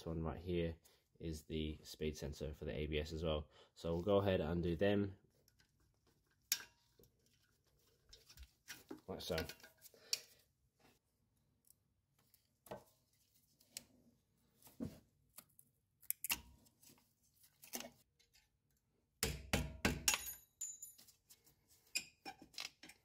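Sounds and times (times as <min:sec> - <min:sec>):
tools clinking against metal: 0:20.1 - 0:21.2.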